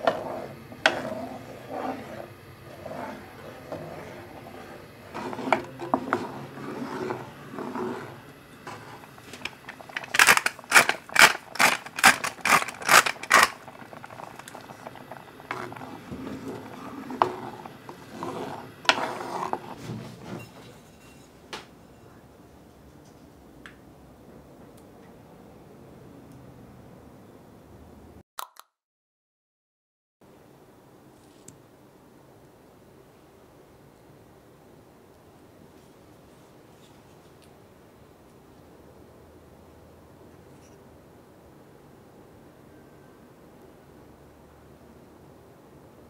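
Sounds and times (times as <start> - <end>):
wooden spatula scraping a pot: 0.0 - 21.3
salt grinder clicking: 8.7 - 16.0.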